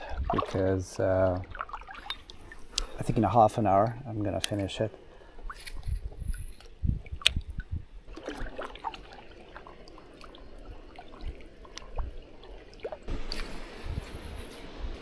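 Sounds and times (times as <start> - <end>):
water gurgling: 0.0 - 4.4, 6.2 - 13.9
water drips and splashes: 0.0 - 15.0
kayak paddle strokes in water: 8.0 - 15.0.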